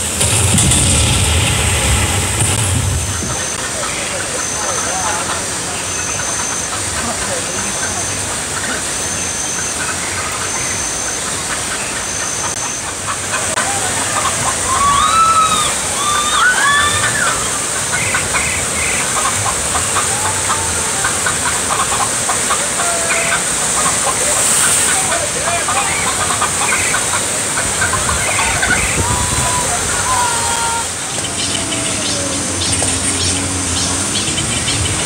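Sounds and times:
rushing water: 0:00.0 - 0:35.0
hens clucking and squawking: 0:19.0 - 0:33.4.

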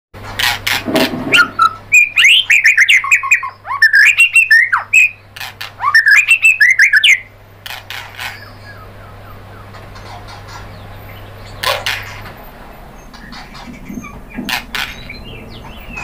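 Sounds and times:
bird singing whistled notes: 0:01.4 - 0:05.2, 0:05.8 - 0:07.3.

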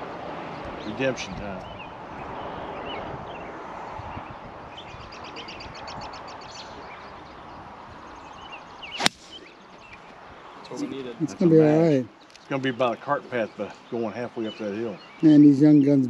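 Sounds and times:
birds chirping: 0:00.0 - 0:16.0
outdoor noise: 0:00.0 - 0:16.0
golf club striking ball: 0:08.9 - 0:09.4.

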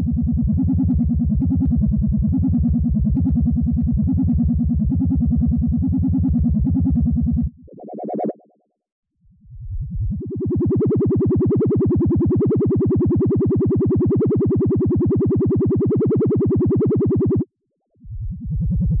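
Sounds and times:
short pulsing tone: 0:00.0 - 0:08.6
pulsing electronic hum: 0:00.0 - 0:19.0.

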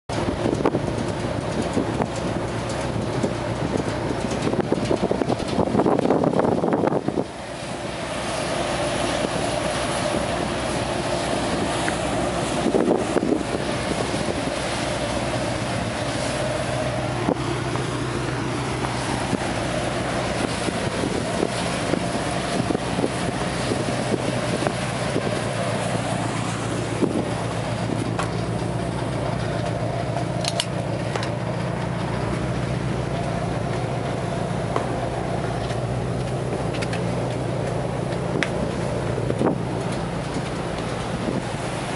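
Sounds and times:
ship machinery drone: 0:00.1 - 0:41.9.

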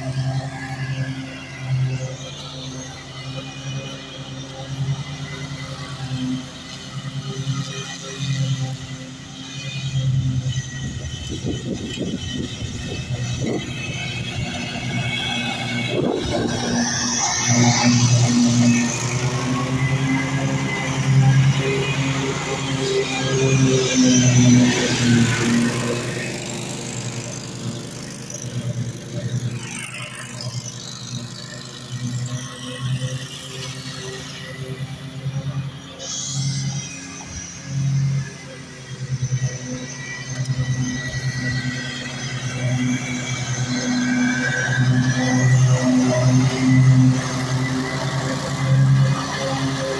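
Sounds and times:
lawn mower engine humming: 0:00.0 - 0:49.9.

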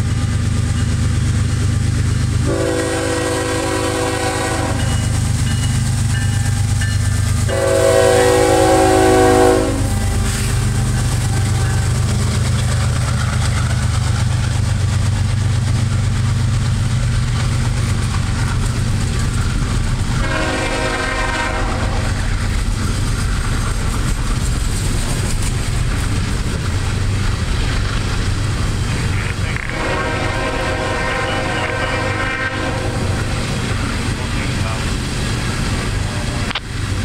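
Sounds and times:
diesel locomotive rumble: 0:00.0 - 0:37.0
rail cars clattering: 0:00.0 - 0:37.0
train horn: 0:02.4 - 0:05.2, 0:07.4 - 0:12.0, 0:20.2 - 0:22.3, 0:29.5 - 0:33.6.

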